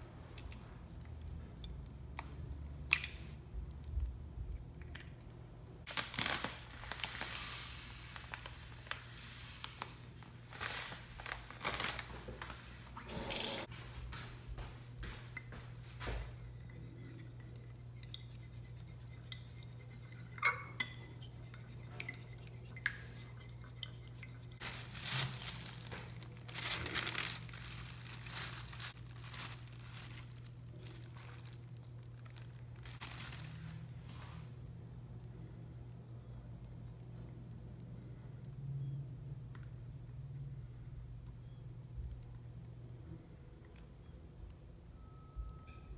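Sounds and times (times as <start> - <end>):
low steady hum: 0.0 - 45.9
plastic bag crinkling: 5.9 - 13.0, 24.6 - 34.2.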